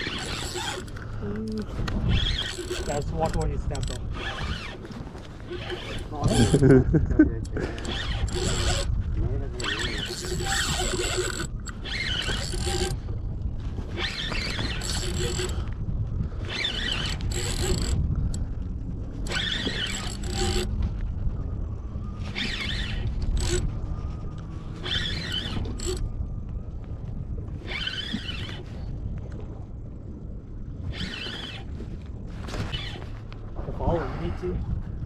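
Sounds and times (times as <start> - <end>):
fishing reel zipping: 0.0 - 6.7, 7.7 - 8.9, 9.5 - 13.2, 13.9 - 15.7, 16.4 - 18.4, 19.2 - 20.8, 22.1 - 23.8, 24.6 - 26.1, 27.6 - 28.8, 30.8 - 31.7, 32.5 - 33.0.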